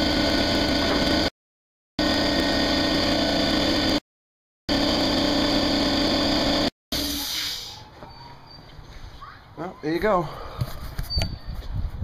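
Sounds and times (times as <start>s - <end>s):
mechanical running noise with hum: 0.0s - 1.3s, 2.0s - 4.0s, 4.7s - 6.7s.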